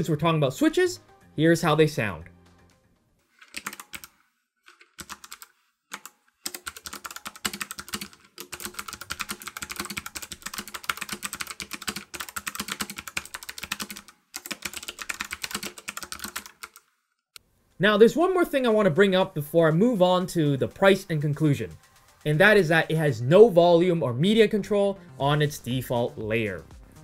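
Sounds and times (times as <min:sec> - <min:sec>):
typing on clicky keyboard: 0:03.4 - 0:16.9.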